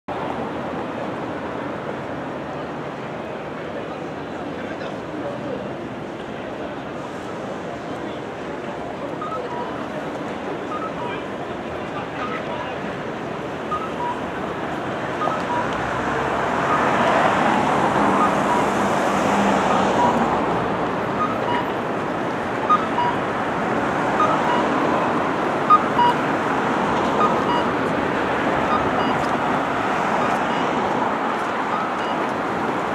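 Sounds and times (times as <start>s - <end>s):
city street traffic: 0.1s - 32.9s
faint short high beeps: 9.2s - 9.8s, 10.6s - 11.2s, 15.2s - 15.7s, 31.7s - 32.2s.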